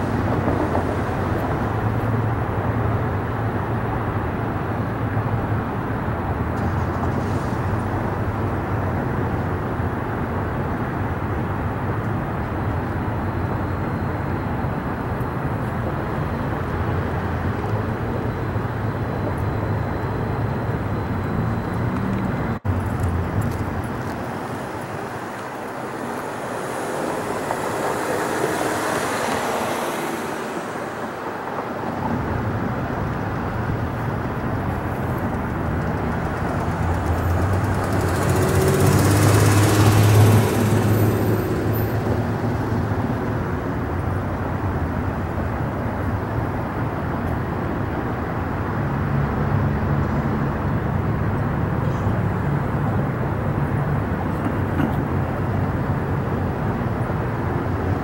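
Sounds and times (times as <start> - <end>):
vehicles passing: 0.0 - 58.0.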